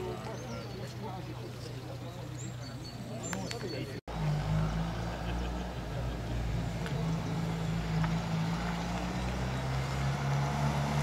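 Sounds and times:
car engine humming: 0.0s - 11.0s.

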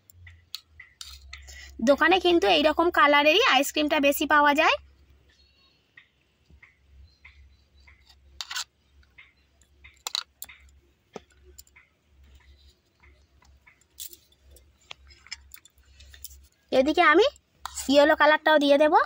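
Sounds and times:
metal spoon scraping bowl: 8.1s - 8.7s, 17.6s - 18.1s.

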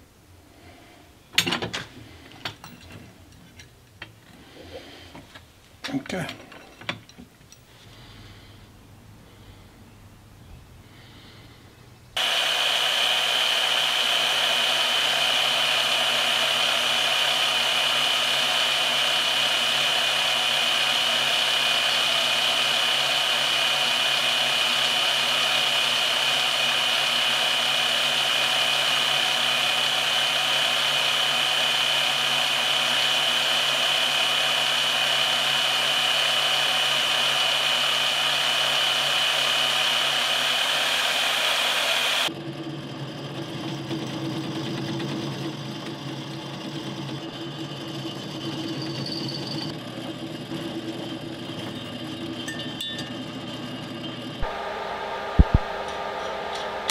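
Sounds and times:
band saw cutting steel: 12.2s - 56.9s.

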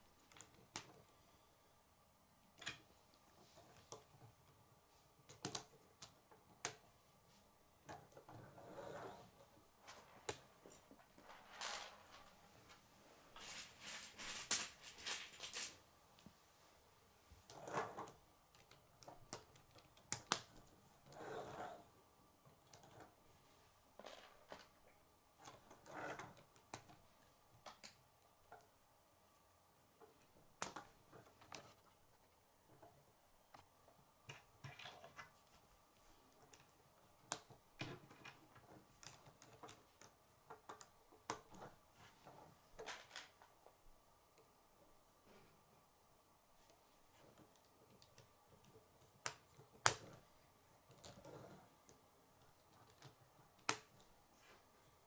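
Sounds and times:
plastic pieces rustling: 13.4s - 15.8s.

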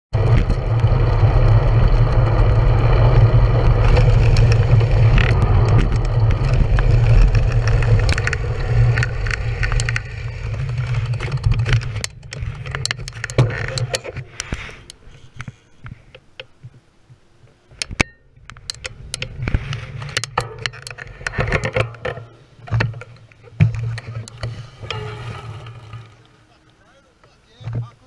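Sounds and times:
bicycle tyre noise on concrete: 0.1s - 28.0s
wind buffeting microphone: 0.2s - 14.2s
bicycle clicks and ticks: 0.2s - 16.8s, 17.7s - 26.8s.

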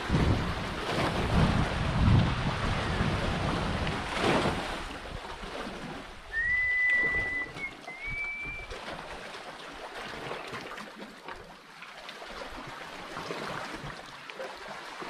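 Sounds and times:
wind buffeting microphone: 0.0s - 8.8s
paddle swoosh: 0.0s - 11.4s
water splashing around canoe: 0.0s - 15.0s
high steady whistle: 6.3s - 8.7s.

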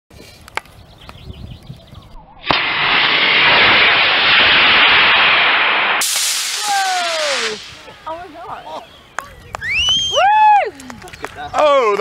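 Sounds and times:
rocket motor igniting crack: 2.4s - 8.0s
rocket rushing hiss: 2.4s - 8.2s.

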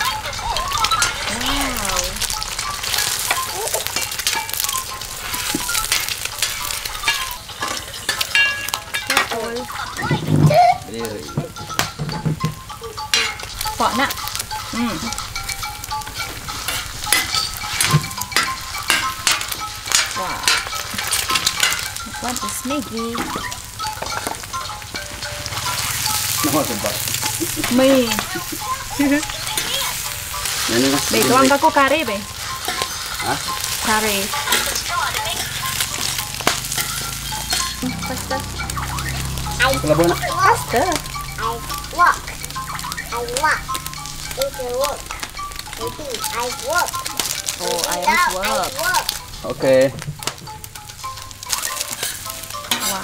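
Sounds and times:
utensil scraping a pan: 0.0s - 22.6s, 25.4s - 41.6s, 51.2s - 53.0s
food sizzling in hot oil: 0.0s - 53.0s.

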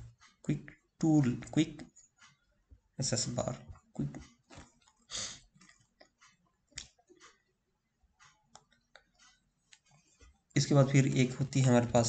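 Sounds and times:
short breath: 5.1s - 5.4s.

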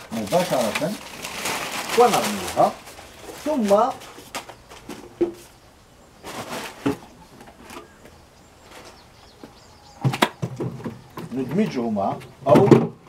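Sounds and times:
wood knocking and scraping on wood: 3.2s - 5.6s, 6.2s - 13.0s.

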